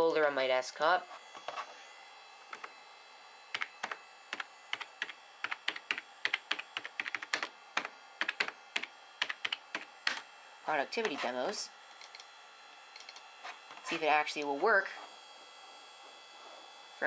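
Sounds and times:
computer keyboard typing: 3.5s - 10.2s, 13.0s - 13.2s.

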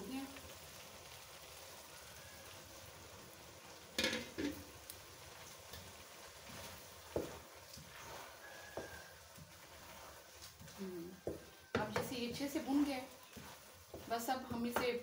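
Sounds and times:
faint sizzle in a wok: 0.0s - 15.0s
spoon knocking against pan: 4.0s - 4.6s, 11.2s - 12.4s.

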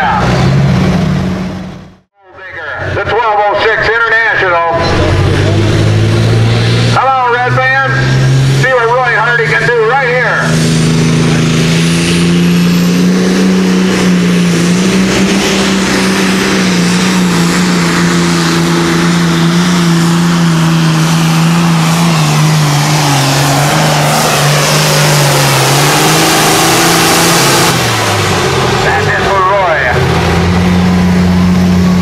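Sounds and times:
tractor engine at full throttle: 0.0s - 32.0s.

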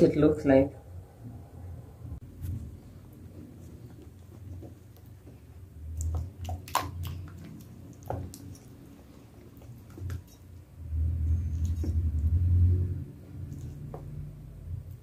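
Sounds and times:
hand squeezing wet dough: 2.4s - 15.0s
wet slaps and clicks: 5.9s - 8.7s.

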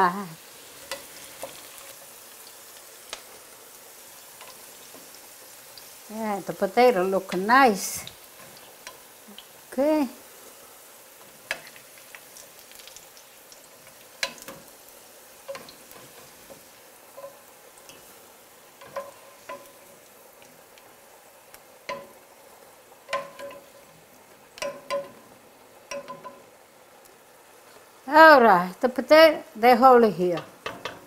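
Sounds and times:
oil sizzling: 0.0s - 31.0s.

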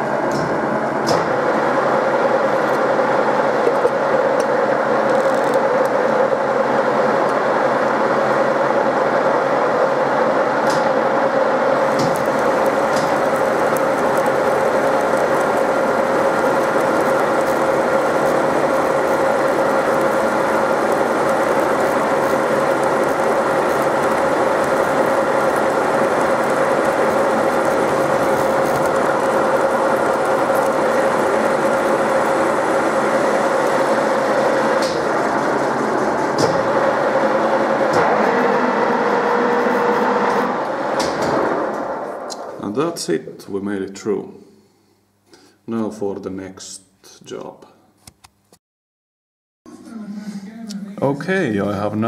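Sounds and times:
spindle drive hum: 11.5s - 40.9s
milling machine cutting metal: 11.8s - 37.1s.

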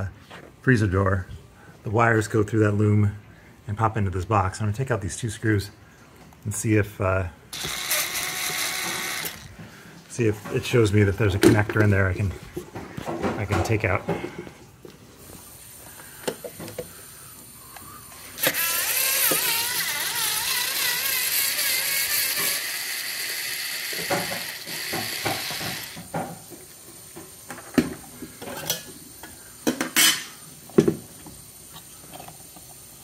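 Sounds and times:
cordless screwdriver motor whining: 7.6s - 9.5s, 18.2s - 26.0s.

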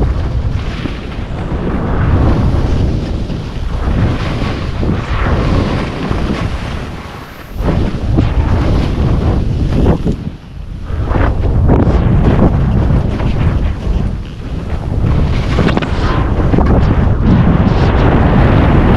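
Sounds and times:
wind buffeting microphone: 0.0s - 18.9s
skis hissing through snow: 2.4s - 8.7s.

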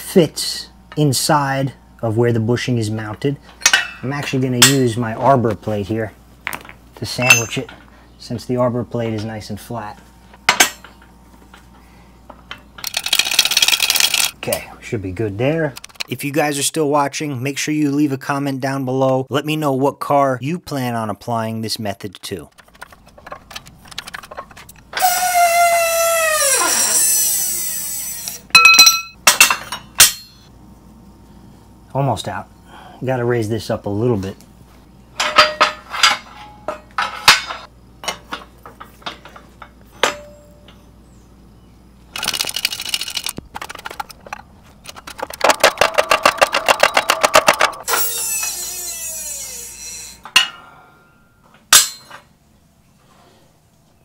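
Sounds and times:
metal clanks: 3.5s - 5.0s, 6.5s - 7.9s, 10.4s - 11.7s, 22.5s - 25.1s, 28.6s - 30.5s, 35.2s - 40.9s, 42.2s - 48.7s, 50.2s - 50.8s, 51.4s - 52.3s
bushing squealing in press: 24.9s - 28.5s, 47.8s - 50.3s.

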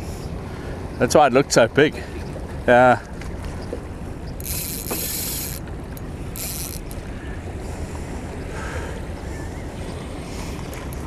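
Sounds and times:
wind and water noise: 0.0s - 11.0s
fishing reel whirring: 4.3s - 7.1s.

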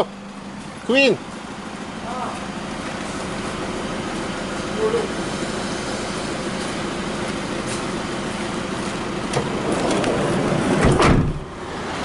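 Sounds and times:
engine idling hum: 0.0s - 12.0s
engine rumbling knocks: 6.4s - 11.6s.

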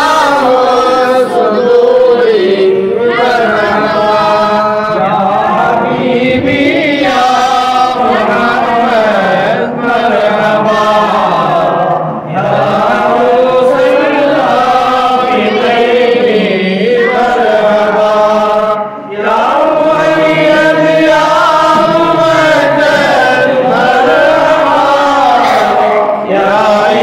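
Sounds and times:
men chanting together: 0.0s - 27.0s.

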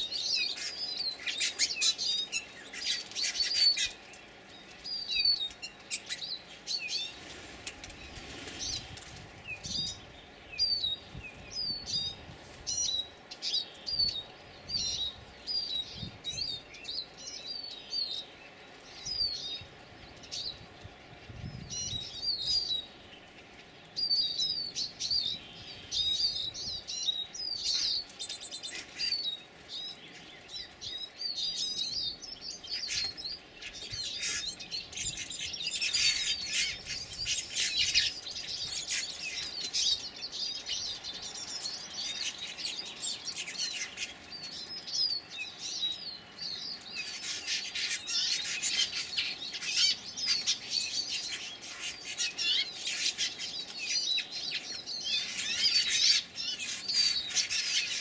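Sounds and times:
birds chirping and chattering: 0.0s - 58.0s
bird wing flaps: 7.1s - 9.4s.

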